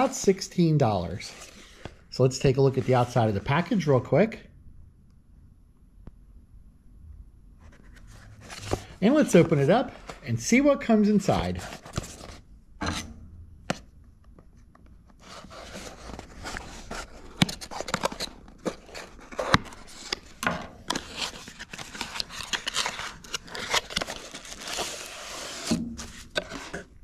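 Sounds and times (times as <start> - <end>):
rubbing and rustling: 14.5 - 27.0
box flap scraping and clicking: 15.2 - 27.0.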